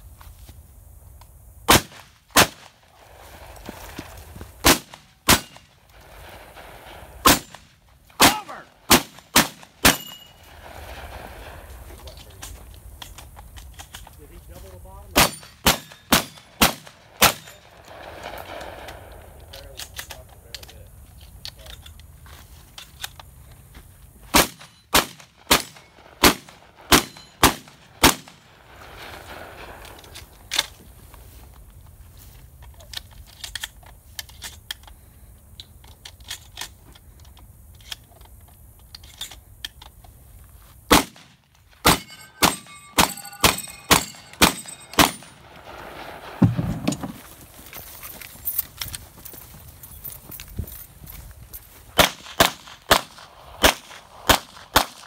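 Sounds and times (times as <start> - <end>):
shotgun shots: 1.7 - 2.8, 4.6 - 11.5, 15.1 - 19.1, 24.3 - 29.8, 40.9 - 47.2, 52.0 - 55.0
steel targets ringing: 9.8 - 10.5, 41.8 - 45.6.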